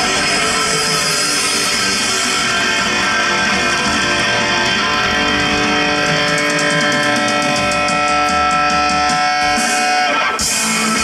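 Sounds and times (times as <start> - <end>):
drums: 0.0 - 11.0
electric guitar chords: 0.0 - 11.0.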